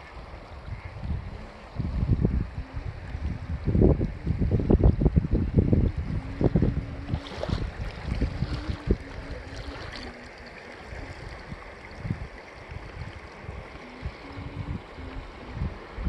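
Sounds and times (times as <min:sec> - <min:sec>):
river water lapping: 0:00.0 - 0:16.0
wind buffeting microphone: 0:00.0 - 0:16.0.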